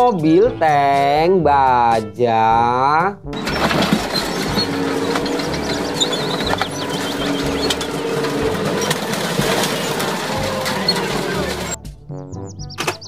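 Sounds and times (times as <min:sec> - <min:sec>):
tank engine: 0:03.3 - 0:11.8, 0:12.5 - 0:13.0
tank tracks clanking: 0:03.3 - 0:11.8, 0:12.6 - 0:13.0
car body creaking and crunching: 0:03.4 - 0:11.8.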